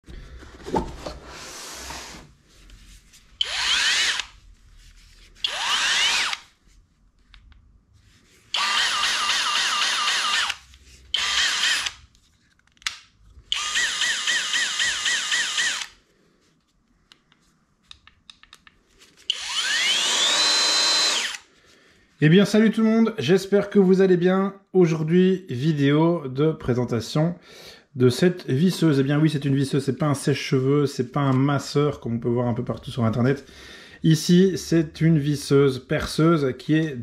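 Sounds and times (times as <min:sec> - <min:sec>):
cordless drill whining: 0:03.4 - 0:04.4, 0:05.4 - 0:06.5, 0:08.5 - 0:12.0, 0:13.5 - 0:16.0, 0:19.3 - 0:21.5.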